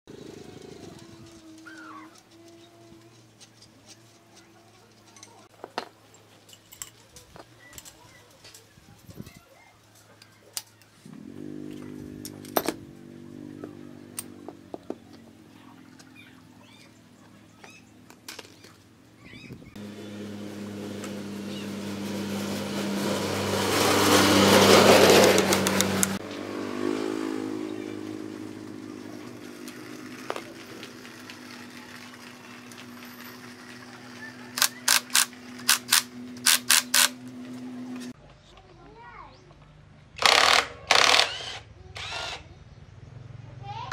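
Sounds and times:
small engine humming: 0.1 - 5.5, 11.0 - 38.2.

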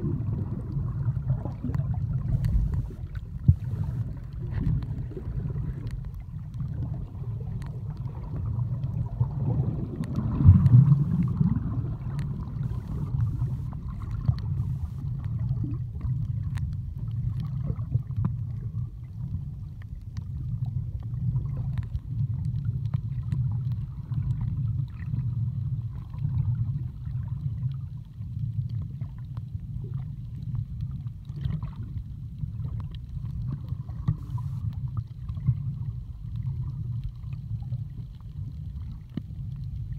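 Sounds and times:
muffled underwater water rumble: 0.0 - 39.9
faint underwater clicks: 0.1 - 39.9.

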